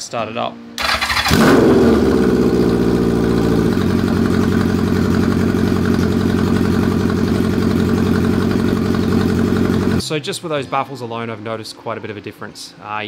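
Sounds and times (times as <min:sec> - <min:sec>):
motorcycle engine idling: 0:00.9 - 0:10.0.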